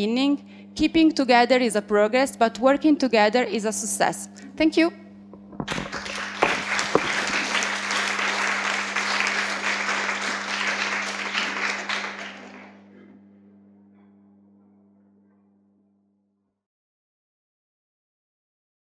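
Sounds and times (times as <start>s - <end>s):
steady low hum: 0.0s - 16.3s
small audience applauding: 5.7s - 12.9s.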